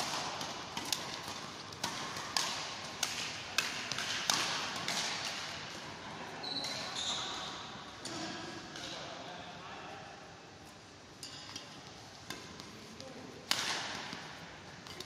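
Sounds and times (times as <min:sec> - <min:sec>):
racket hitting shuttlecock: 0:00.0 - 0:05.8, 0:11.2 - 0:12.8, 0:13.4 - 0:15.0.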